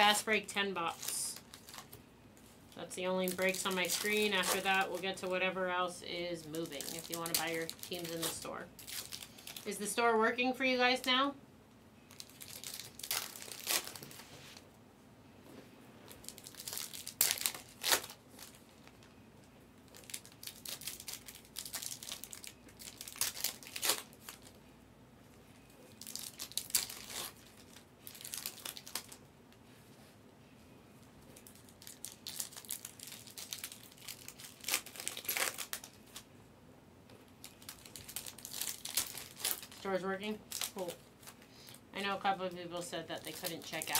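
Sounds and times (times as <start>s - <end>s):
foil wrappers tearing and crinkling: 0.0s - 2.0s, 2.7s - 5.8s, 6.4s - 9.9s, 12.1s - 14.2s, 16.2s - 19.1s, 19.9s - 24.6s, 25.9s - 29.2s, 31.4s - 36.2s, 37.4s - 42.3s, 43.0s - 43.9s.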